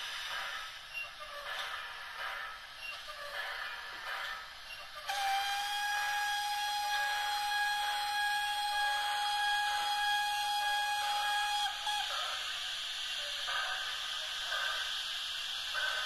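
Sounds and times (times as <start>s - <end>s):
soft steam hiss: 0.0s - 16.0s
steam whistle blast: 5.1s - 12.6s.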